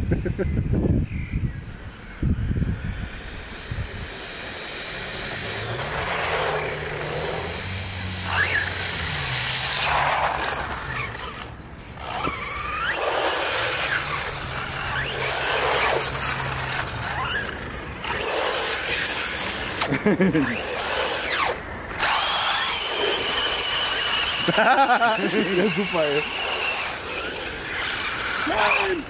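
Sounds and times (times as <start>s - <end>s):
rc car motor whine: 0.2s - 29.0s
tyre squeals: 17.1s - 18.2s
tyres hissing on wet asphalt: 22.4s - 29.0s.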